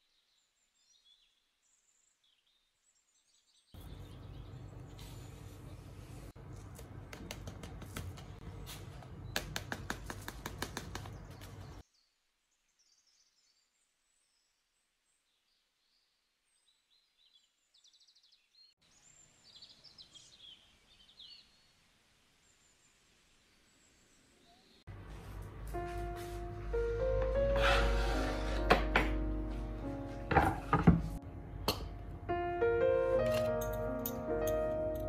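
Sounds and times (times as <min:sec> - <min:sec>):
small birds chirping: 0:00.0 - 0:06.3, 0:08.4 - 0:24.9
soil and plant pot rustling: 0:03.8 - 0:09.3.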